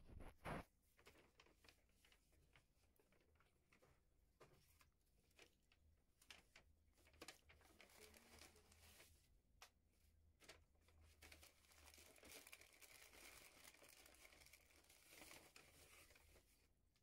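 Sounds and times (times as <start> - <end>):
packaging crinkling: 11.2 - 16.4.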